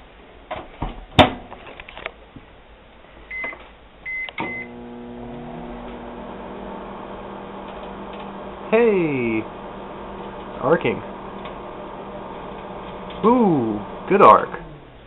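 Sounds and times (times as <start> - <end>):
keypad beeps: 3.3 - 4.7
microwave oven humming: 4.1 - 15.0.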